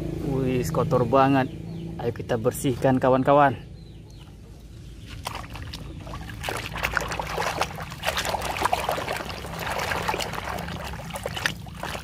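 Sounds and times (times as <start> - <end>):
water splashing in plastic tub: 5.0 - 12.0.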